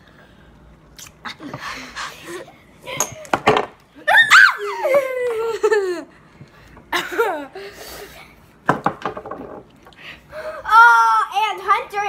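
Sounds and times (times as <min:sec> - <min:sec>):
children laughing: 0:04.0 - 0:06.3, 0:06.9 - 0:08.4.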